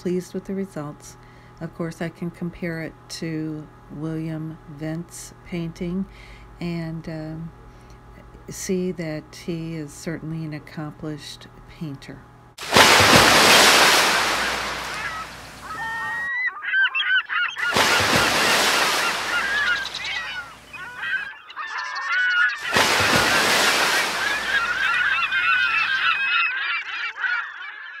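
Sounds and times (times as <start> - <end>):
waves breaking on beach: 12.6 - 16.3, 17.6 - 20.8, 22.6 - 25.9
birds honking: 12.6 - 28.0.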